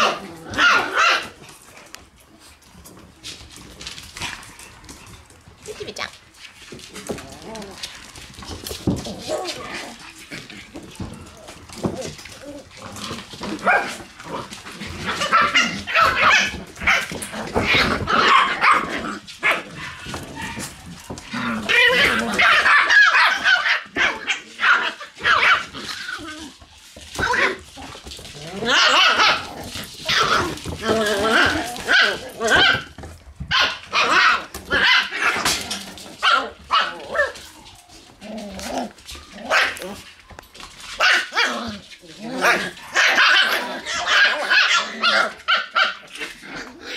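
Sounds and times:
puppies barking and yipping: 0.0s - 5.6s, 6.5s - 46.9s.

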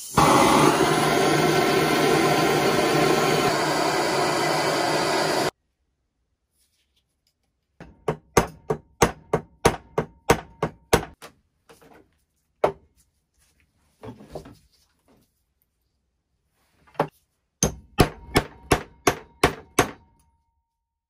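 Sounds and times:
hammer striking metal: 17.6s - 20.3s.

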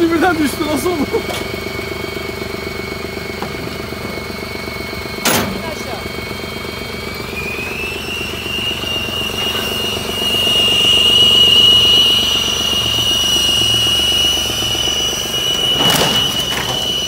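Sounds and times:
car engine humming: 0.0s - 17.0s
steady high whistle: 5.9s - 17.0s.

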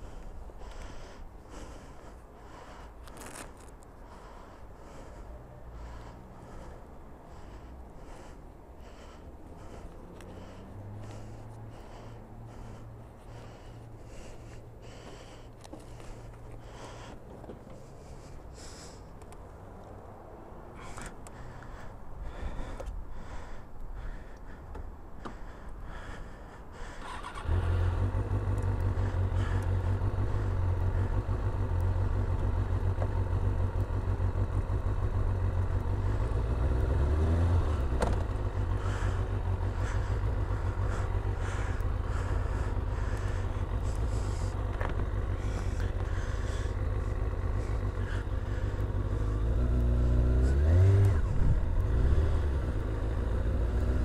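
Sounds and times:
motorcycle engine starting and idling: 24.4s - 54.0s
motorcycle revving: 27.0s - 54.0s.

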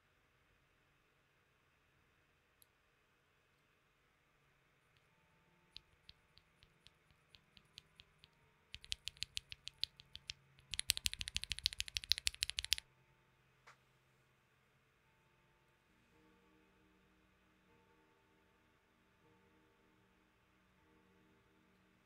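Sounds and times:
keyboard switch presses: 5.8s - 12.8s.

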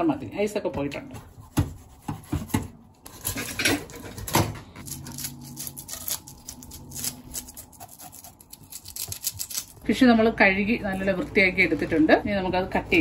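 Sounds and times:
knife scraping fish scales: 4.8s - 9.8s
scissors snipping fish fins: 5.1s - 9.8s.

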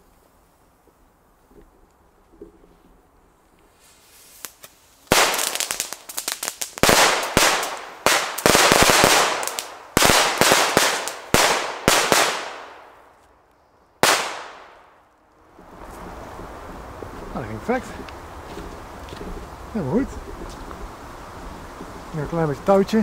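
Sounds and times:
firecrackers banging: 3.8s - 13.1s, 14.0s - 15.0s.

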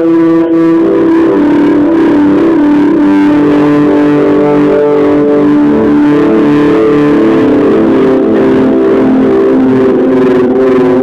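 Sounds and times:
synthesiser sustained notes: 0.0s - 11.0s.

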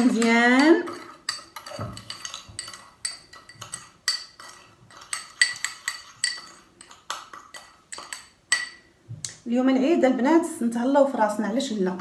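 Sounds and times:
metal spoon clinking in a cup: 0.0s - 8.9s.

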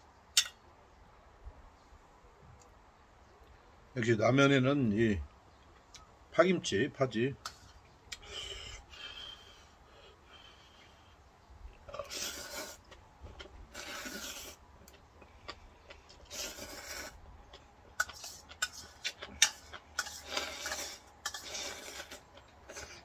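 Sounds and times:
mouth clicks: 8.1s - 9.3s
person slurping noodles: 11.9s - 12.9s, 13.7s - 14.6s, 16.2s - 17.2s, 18.0s - 23.0s.

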